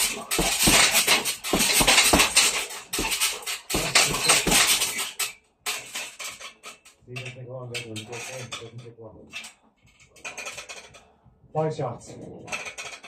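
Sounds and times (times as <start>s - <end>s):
gloved punches on heavy bag: 0.0s - 5.0s
metallic clatter of bag stand: 0.0s - 11.0s, 12.5s - 13.0s.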